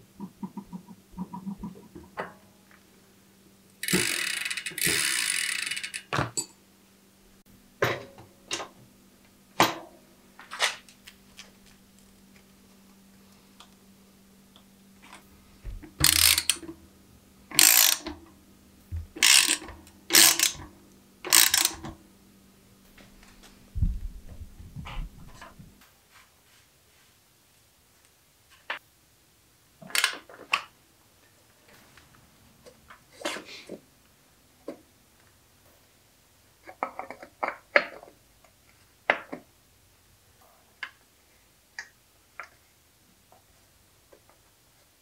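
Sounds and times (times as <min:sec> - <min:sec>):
ratchet strokes: 0:03.8 - 0:06.1, 0:16.0 - 0:16.6, 0:17.6 - 0:18.1, 0:19.2 - 0:20.6, 0:21.3 - 0:21.8.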